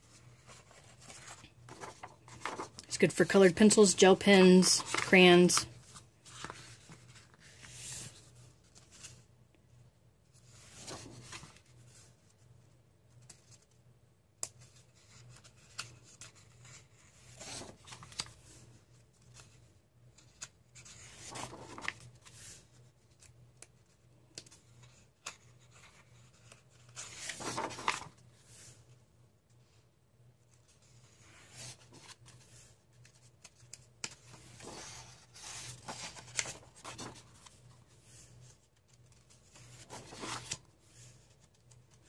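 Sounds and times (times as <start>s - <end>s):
pages turning: 0.1s - 3.0s, 3.7s - 9.2s, 10.4s - 12.1s, 14.4s - 18.6s, 19.2s - 28.8s, 30.5s - 42.0s
hands brushing pages: 27.2s - 28.1s.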